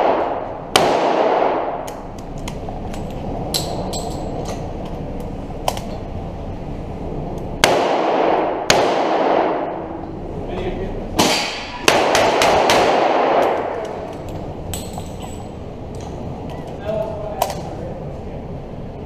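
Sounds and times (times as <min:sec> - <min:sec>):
revolver shots ringing indoors: 0:00.0 - 0:06.1, 0:07.3 - 0:10.2, 0:11.1 - 0:16.2.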